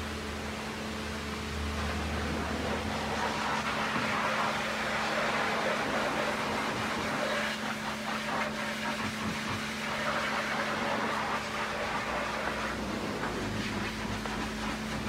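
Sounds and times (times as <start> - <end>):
steady machine hum: 0.0 - 15.0
brush scrubbing on steel: 2.1 - 15.0.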